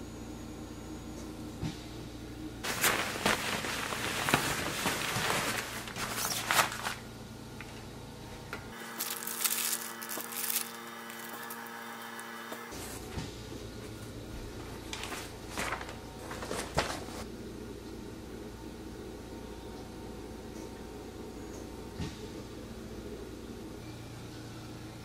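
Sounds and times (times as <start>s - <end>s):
plastic wrapping crinkling: 2.6s - 7.1s, 8.8s - 12.3s, 14.8s - 17.2s.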